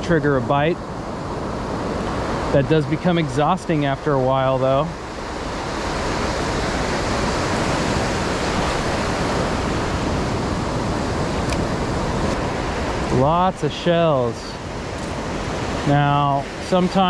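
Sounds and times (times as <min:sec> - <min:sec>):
small waves breaking on sand: 0:00.2 - 0:17.0.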